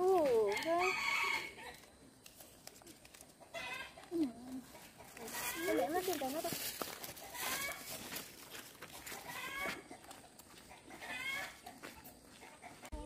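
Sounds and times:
chickens squawking: 3.4 - 6.0, 7.1 - 8.1, 8.9 - 12.9.

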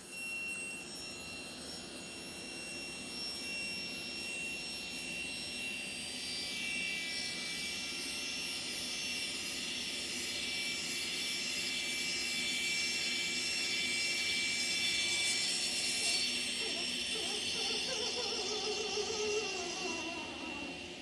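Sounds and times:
table saw whining: 0.0 - 21.0
blade cutting through plate: 14.8 - 21.0.

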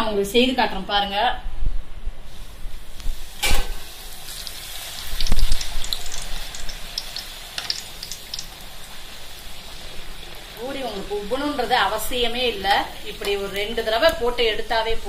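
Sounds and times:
bread sizzling in hot oil: 2.3 - 15.0
small crackles: 5.0 - 8.5.

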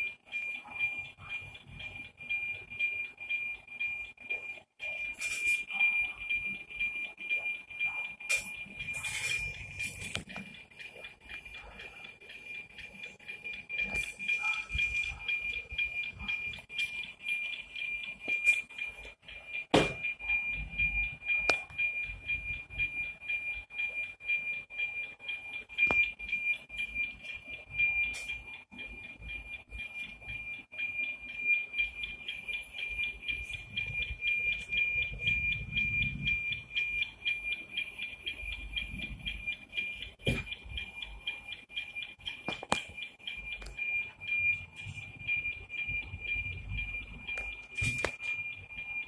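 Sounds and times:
pulsing high radio tone: 4.8 - 10.5, 13.7 - 23.0.

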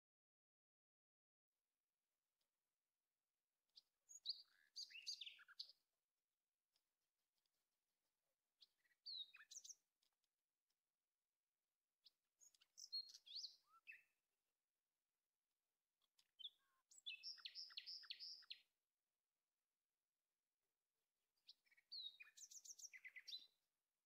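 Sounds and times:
songbird chirping and whistling: 4.1 - 5.8, 8.6 - 9.8, 12.4 - 14.1, 16.2 - 18.6, 21.5 - 23.6.

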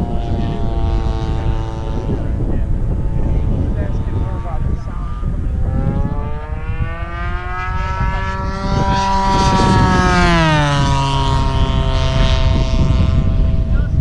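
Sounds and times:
model airplane engine droning: 0.0 - 14.0
wind rumble on microphone: 0.0 - 14.0.

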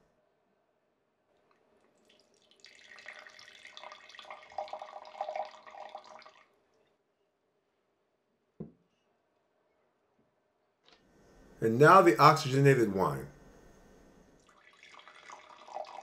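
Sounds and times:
wine pouring into a glass: 2.0 - 6.6, 14.4 - 16.0.

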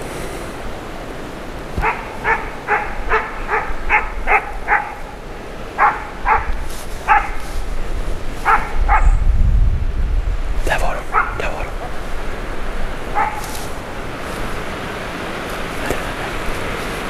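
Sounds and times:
dog barking: 1.8 - 5.2, 5.8 - 7.4, 8.4 - 9.2, 11.0 - 12.0, 13.1 - 13.6.

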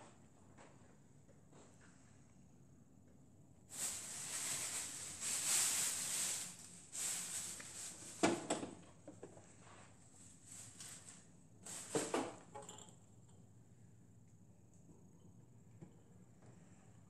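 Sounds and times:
shuffling and rustling: 3.7 - 8.5, 9.3 - 12.4.

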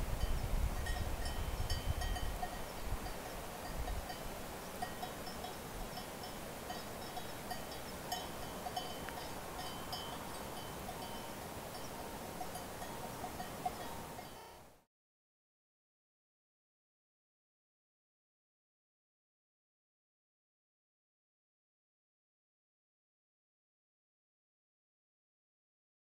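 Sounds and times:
distant livestock bells clinking: 0.2 - 14.7.

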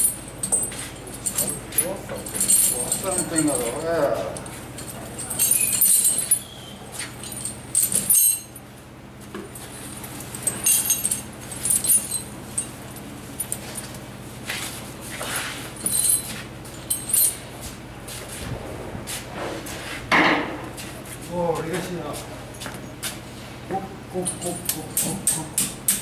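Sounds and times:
snow chains clinking: 0.0 - 8.5
steady low hum: 0.0 - 26.0.

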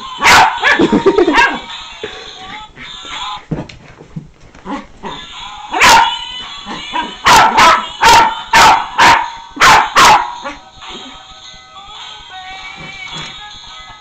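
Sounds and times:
small dog barking: 0.2 - 1.6, 7.0 - 10.6.

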